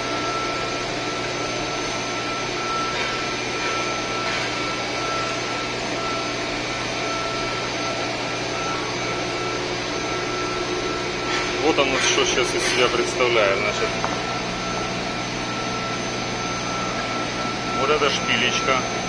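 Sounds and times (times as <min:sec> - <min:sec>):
constant whining tone: 0:00.0 - 0:19.0
industrial machinery drone: 0:00.0 - 0:19.0.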